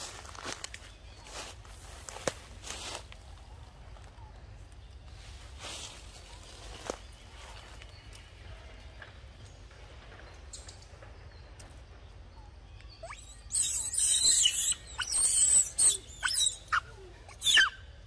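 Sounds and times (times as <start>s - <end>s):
faint forest background: 0.0s - 18.0s
macaque squealing and screeching: 13.0s - 17.8s.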